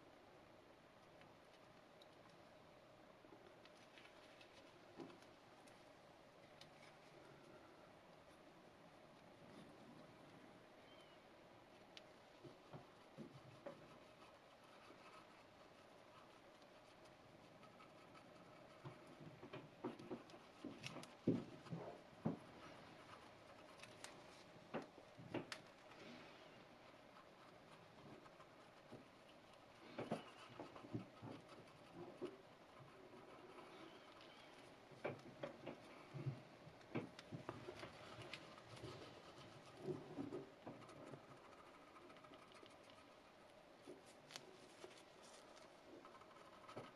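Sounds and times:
cotton swab rubbing plastic teeth: 37.6s - 46.9s.

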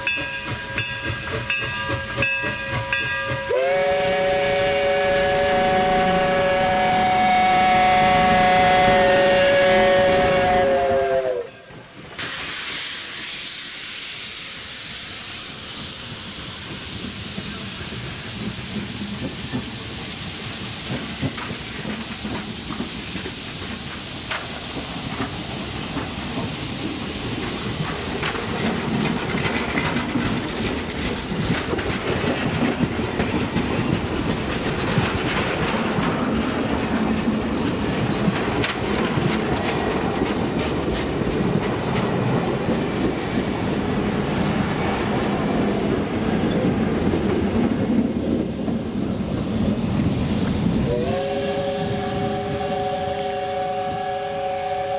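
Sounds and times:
train cars rumbling past: 0.0s - 12.2s, 12.8s - 54.9s
steam whistle chord: 3.5s - 11.6s, 50.9s - 54.9s
wheels clicking over rail joints: 16.6s - 49.4s.

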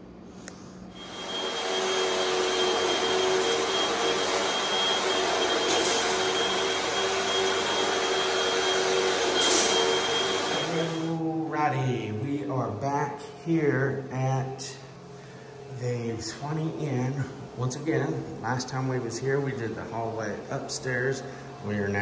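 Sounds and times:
vacuum cleaner running: 0.9s - 11.4s.

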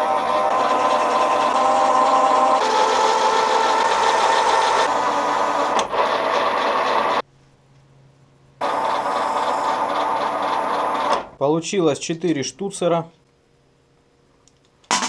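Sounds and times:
metal lathe humming: 0.0s - 7.2s, 8.6s - 11.3s.

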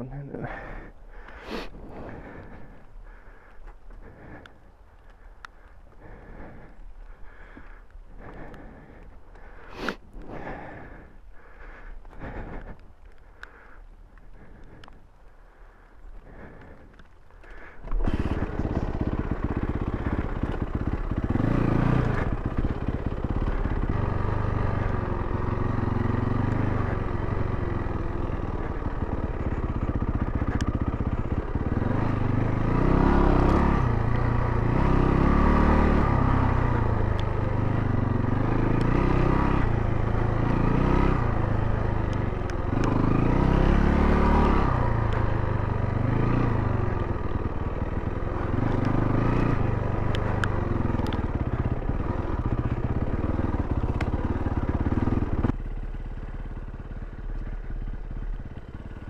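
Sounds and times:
dirt bike engine revving: 17.6s - 55.5s.

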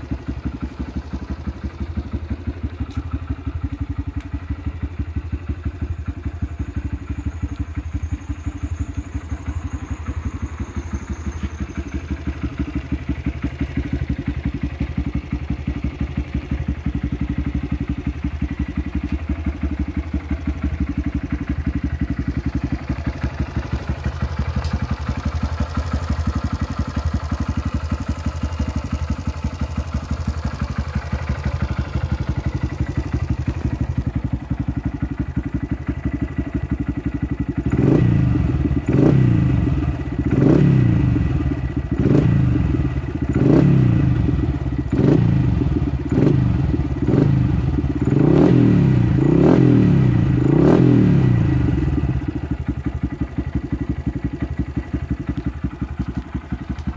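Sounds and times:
engine throttle blips: 0.0s - 15.5s
motorcycle engine idling: 0.0s - 56.9s.

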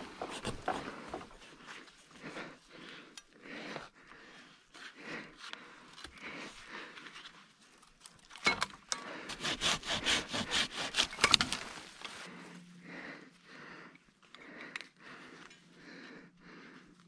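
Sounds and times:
hand saw cutting a branch: 9.0s - 11.8s.

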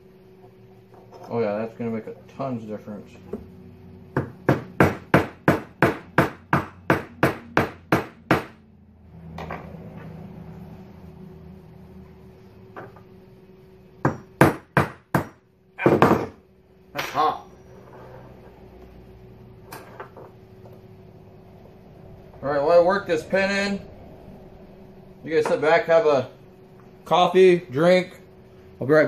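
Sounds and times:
hammer knocking on metal: 4.1s - 8.6s, 14.0s - 16.4s.

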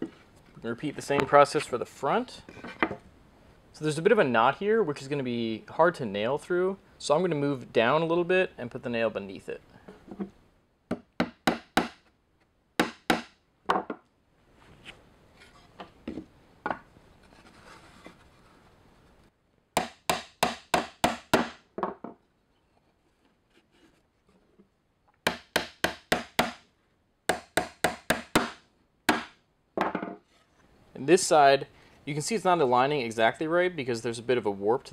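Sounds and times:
boards being handled: 2.5s - 3.1s, 13.2s - 18.8s, 21.4s - 24.7s, 28.4s - 30.7s
hammer driving nails into wood: 10.9s - 12.1s, 12.8s - 14.0s, 19.8s - 21.6s, 25.3s - 26.6s, 27.3s - 29.9s.

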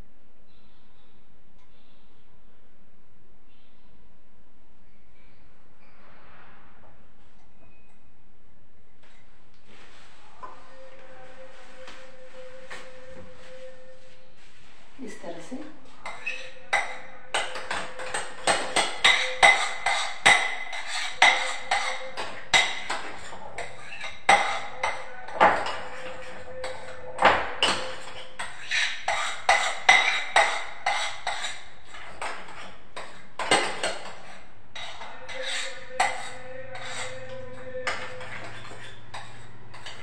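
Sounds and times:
utensil knocking against mixing bowl: 16.1s - 40.0s.

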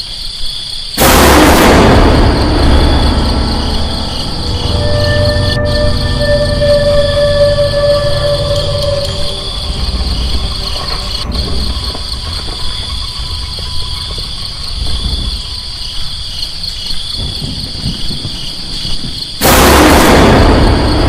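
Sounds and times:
crickets chirring: 0.0s - 21.0s
loud boom: 1.0s - 13.3s, 19.4s - 21.0s
low rumble: 1.0s - 16.5s.

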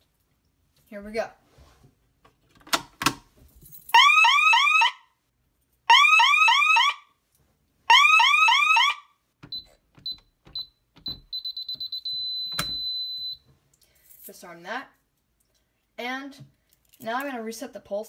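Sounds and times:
fire alarm chirping bursts: 7.9s - 13.4s
keypad beeps: 9.4s - 13.4s
steady high beep tone: 9.5s - 13.4s.

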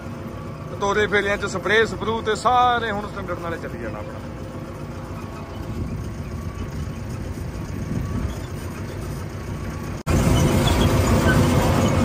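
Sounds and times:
tractor engine running: 0.0s - 12.0s.

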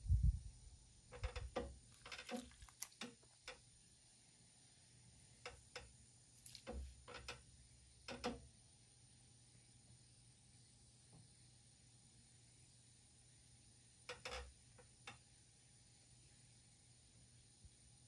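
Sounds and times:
wet clicks of hands on clay: 2.2s - 3.2s.

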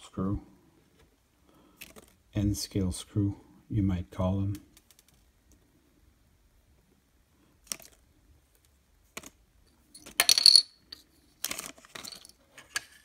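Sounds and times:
parts scraping: 9.9s - 13.0s.

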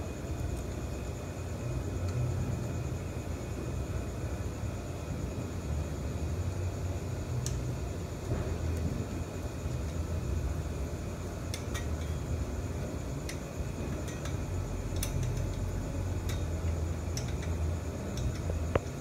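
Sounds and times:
steady low hum: 0.0s - 19.0s
small metal clicks and taps: 14.0s - 19.0s.

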